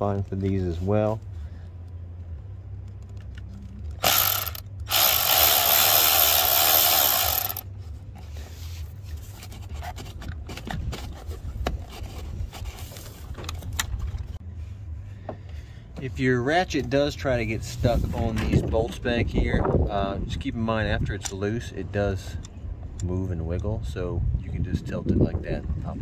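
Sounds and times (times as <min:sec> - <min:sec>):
power ratchet running: 0:04.0 - 0:07.7.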